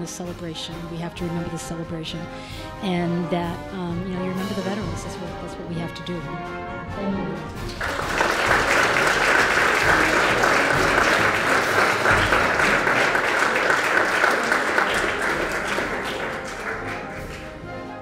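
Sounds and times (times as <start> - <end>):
audience applauding: 7.6 - 17.9.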